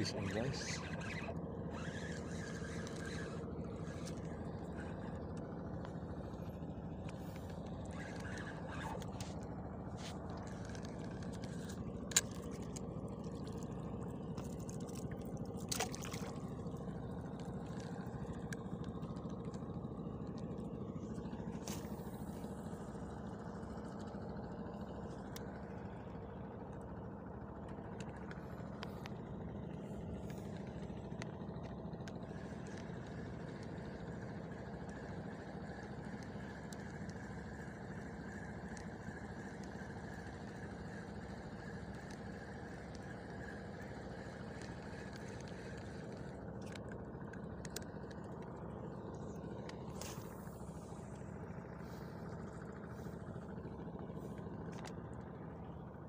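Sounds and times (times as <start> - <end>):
boat motor running: 0.0 - 56.0.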